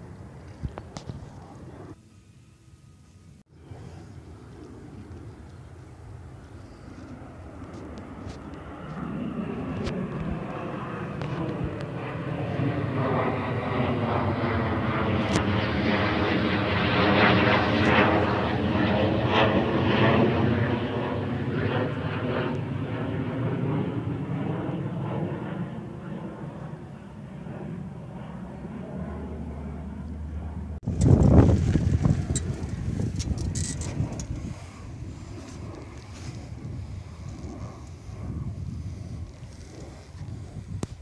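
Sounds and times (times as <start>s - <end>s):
jet fighter flying over: 0.0s - 2.0s, 3.4s - 41.0s.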